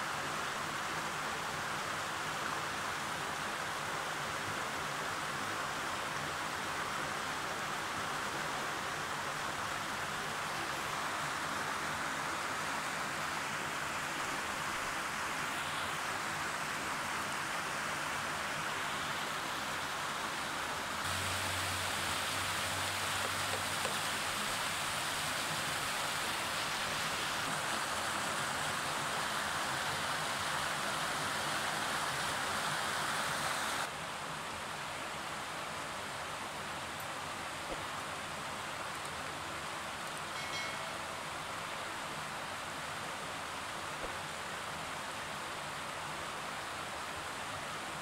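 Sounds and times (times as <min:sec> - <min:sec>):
river rushing over rocks: 0:00.0 - 0:48.0.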